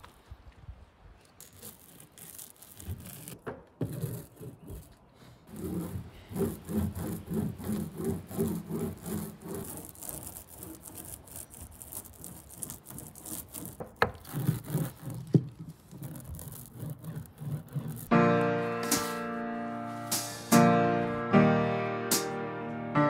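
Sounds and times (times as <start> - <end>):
metal roller rubbing rattle: 5.5 - 18.1.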